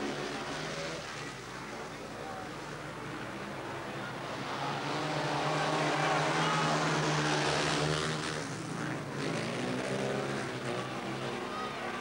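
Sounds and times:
motorbikes racing: 3.1 - 12.0.

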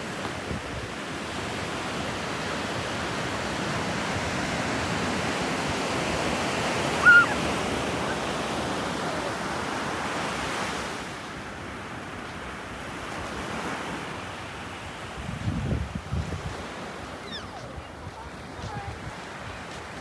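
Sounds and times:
ocean surf washing: 0.0 - 20.0
short high-pitched cry: 7.0 - 7.4.

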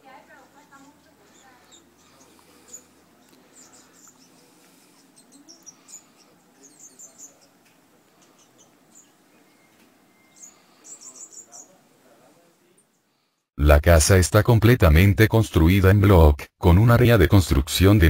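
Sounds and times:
high-pitched bird chirps: 5.0 - 7.6, 8.3 - 11.8.

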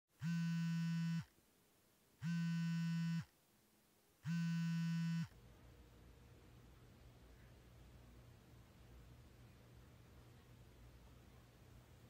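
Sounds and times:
phone buzzing: 0.2 - 1.3, 2.2 - 3.3, 4.2 - 5.4.

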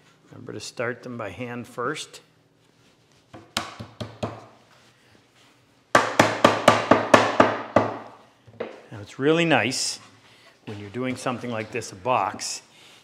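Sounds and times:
mallet knocking wood: 6.0 - 8.8.

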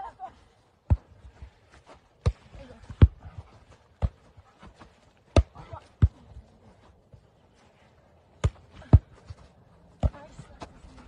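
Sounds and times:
volleyball thumps: 5.3 - 6.3, 8.4 - 9.4.

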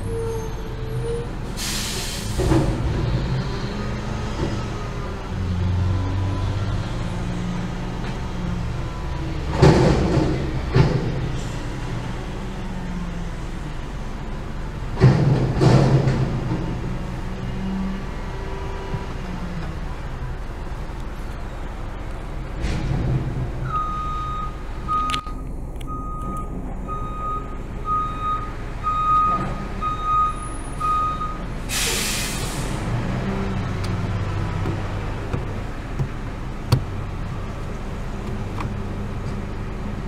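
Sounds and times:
air brakes hissing: 0.0 - 2.6, 31.7 - 32.9
reversing alarm beeping: 23.7 - 31.4.

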